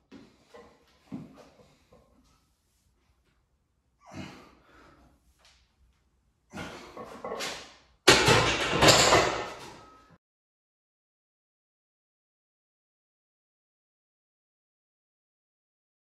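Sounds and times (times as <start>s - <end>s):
soft knocks and shuffling: 0.1s - 3.4s
weight plates rattling: 8.1s - 9.8s
barbell clanking into rack: 8.1s - 9.9s.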